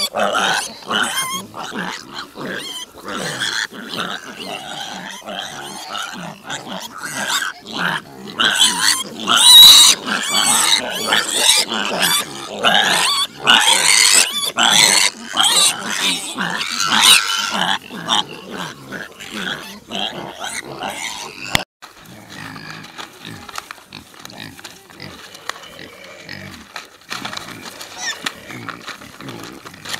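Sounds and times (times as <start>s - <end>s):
piglets squealing and grunting: 0.0s - 29.9s.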